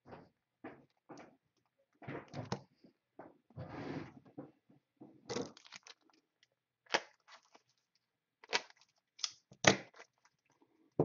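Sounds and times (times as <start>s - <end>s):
plastic sleeves crinkling: 5.3s - 11.0s.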